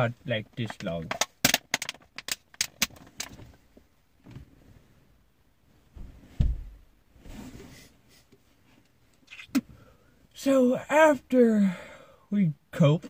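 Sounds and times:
low thump: 6.0 - 6.8.

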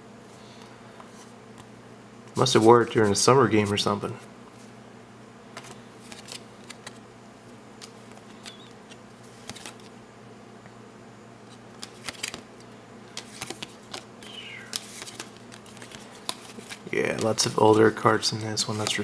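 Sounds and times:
steady low hum: 0.0 - 19.0
trading cards flipping: 5.6 - 7.0, 7.8 - 10.0, 11.5 - 19.0.

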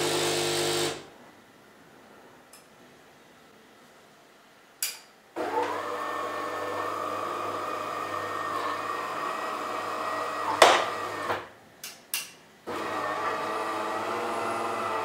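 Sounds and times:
coffee machine running: 0.0 - 1.1, 5.4 - 11.4, 12.7 - 15.0.

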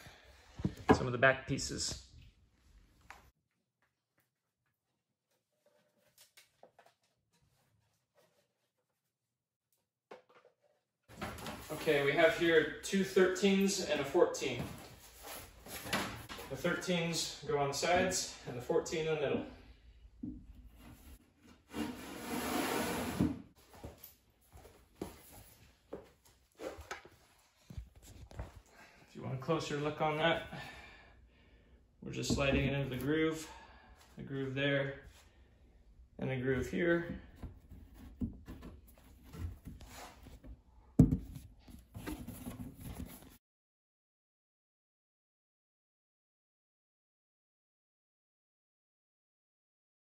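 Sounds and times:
board scraping against board: 21.5 - 23.4.

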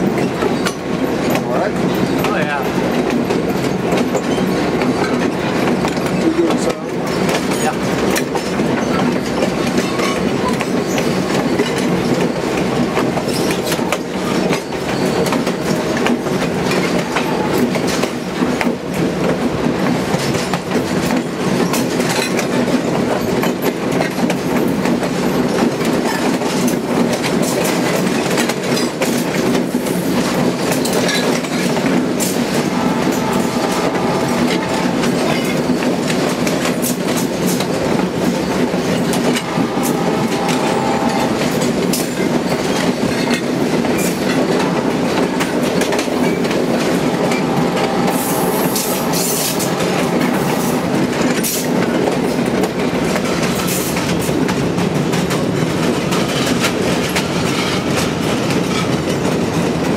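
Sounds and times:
wheels clicking over rail joints: 0.0 - 32.9, 50.8 - 59.9
train wheels rumbling on rails: 0.0 - 59.9.

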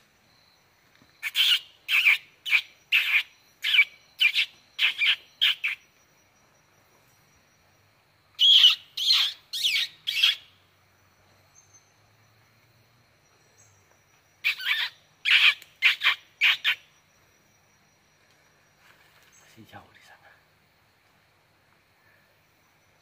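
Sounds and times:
bird calling: 1.2 - 5.9, 8.4 - 10.5, 14.4 - 17.0.

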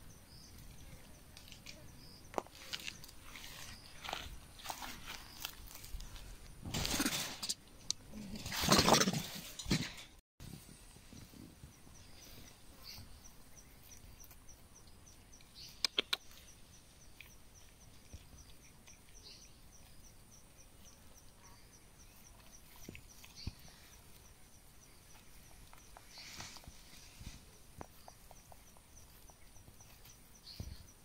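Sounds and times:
sharp clicks: 15.4 - 16.5.

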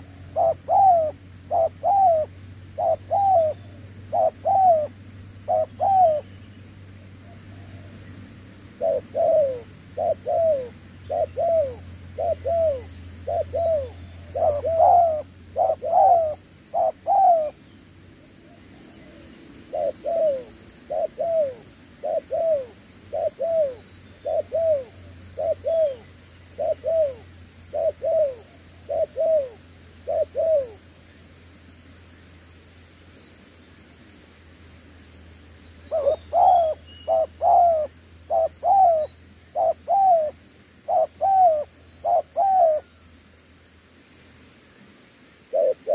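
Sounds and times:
dove cooing: 0.0 - 6.4, 8.7 - 17.6, 18.5 - 30.8, 35.9 - 43.0, 45.5 - 45.9.

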